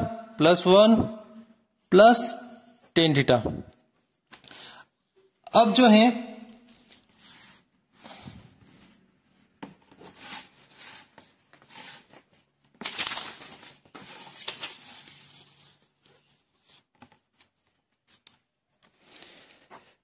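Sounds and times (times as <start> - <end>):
paper rustling under a pen: 6.5 - 20.0.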